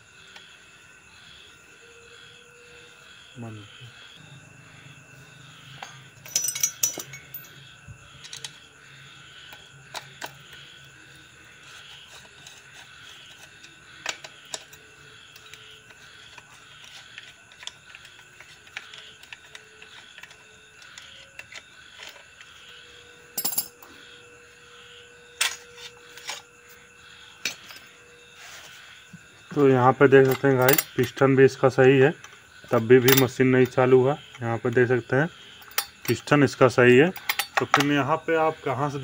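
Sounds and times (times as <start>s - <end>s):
metallic wrench clicks and clinks: 6.2s - 7.5s, 37.2s - 37.8s.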